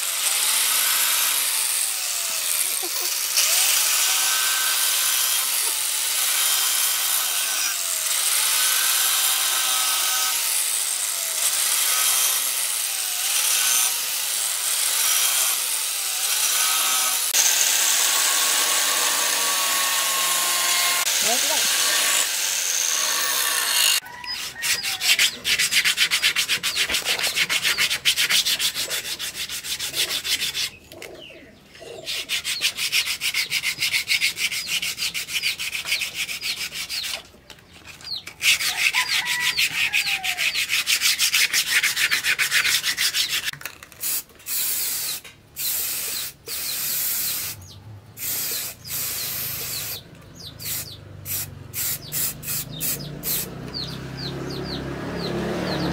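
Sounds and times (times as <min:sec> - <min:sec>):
angle grinder disc against wood: 0:00.0 - 0:31.2
sandpaper rubbing on wood: 0:24.3 - 0:30.8, 0:32.0 - 0:37.2, 0:38.4 - 0:47.6.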